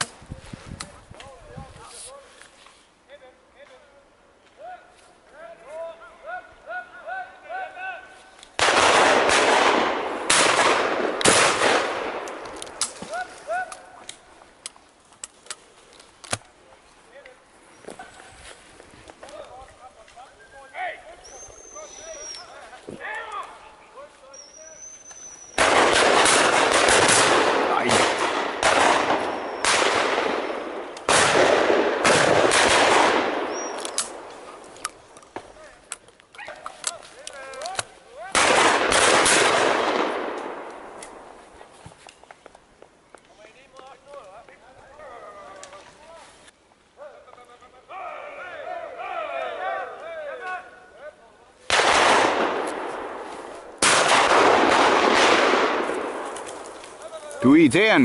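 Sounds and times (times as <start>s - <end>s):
shotgun shots: 8.6s - 13.2s, 25.6s - 34.6s, 38.3s - 41.3s, 51.7s - 56.6s.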